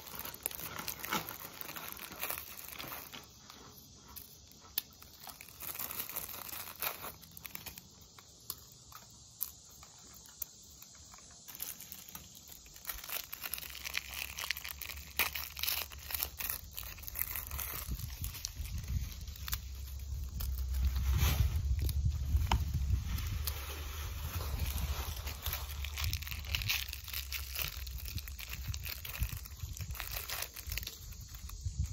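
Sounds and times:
cellophane packet crinkling: 0:00.0 - 0:31.9.

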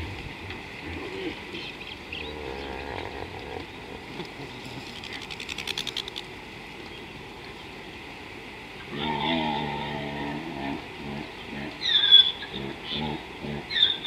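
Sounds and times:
bird chirps and warbles: 0:01.1 - 0:06.1, 0:11.0 - 0:14.0
fast run of sharp clicks: 0:04.9 - 0:06.3.

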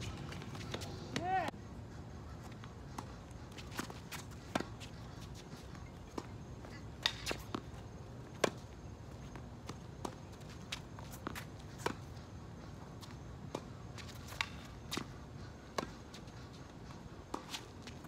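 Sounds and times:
players footsteps: 0:00.0 - 0:01.5.

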